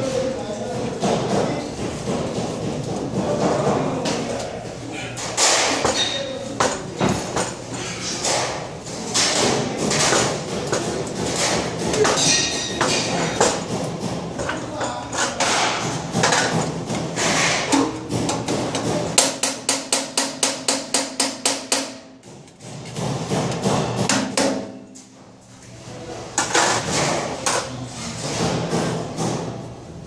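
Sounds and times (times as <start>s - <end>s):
tool clatter: 5.2s - 24.8s.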